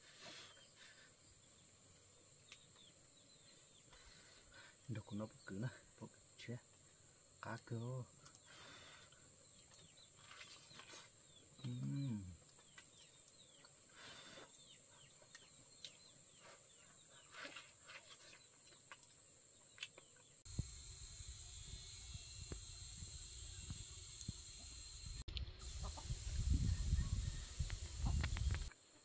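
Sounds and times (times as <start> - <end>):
high insect drone: 0.3 - 15.1, 20.5 - 28.8
man humming: 11.6 - 12.4
wind rumble on microphone: 25.0 - 28.7.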